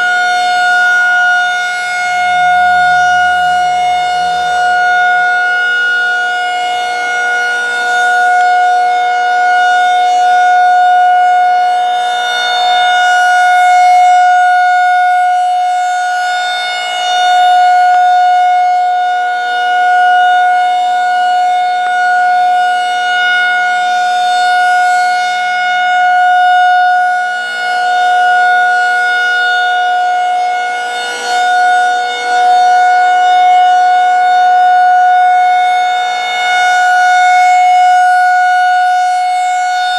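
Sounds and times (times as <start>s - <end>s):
rotating warning siren: 0.0s - 39.9s.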